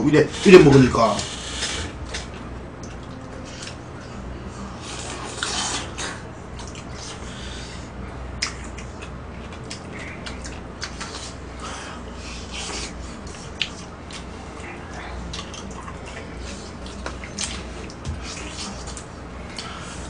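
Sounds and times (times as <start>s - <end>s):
steady low hum: 0.0s - 20.0s
wet chewing and slurping: 4.8s - 7.5s, 8.4s - 20.0s.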